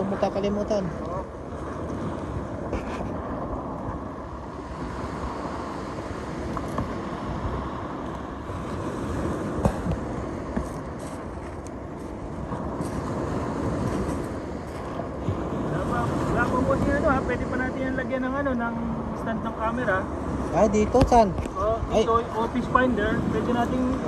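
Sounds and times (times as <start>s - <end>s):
surf on shingle beach: 0.0s - 24.0s
wind buffeting microphone: 0.0s - 24.0s.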